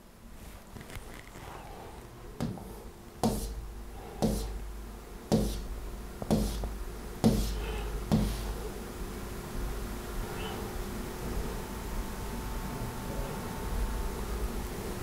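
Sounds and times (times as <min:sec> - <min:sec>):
dull knocks with deep thud: 0:02.4 - 0:03.5, 0:04.2 - 0:04.5, 0:06.2 - 0:08.5.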